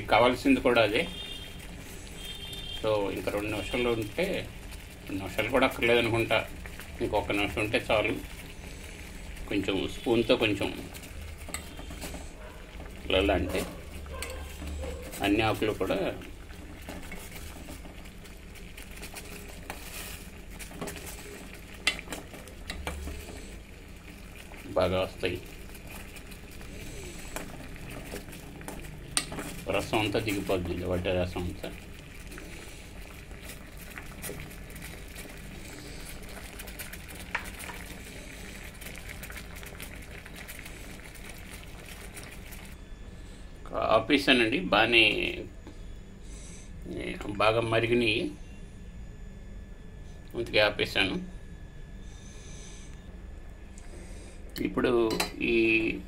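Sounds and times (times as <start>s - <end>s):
water boiling in a pot: 0.0s - 49.7s, 50.3s - 56.0s
spoon stirring: 0.8s - 42.8s.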